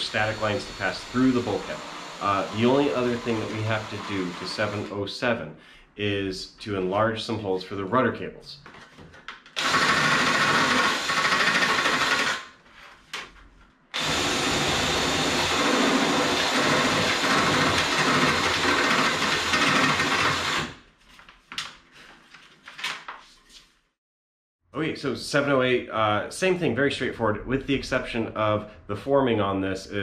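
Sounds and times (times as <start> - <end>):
cordless drill drilling aluminum: 0.0 - 4.9, 9.6 - 12.5, 14.0 - 20.8.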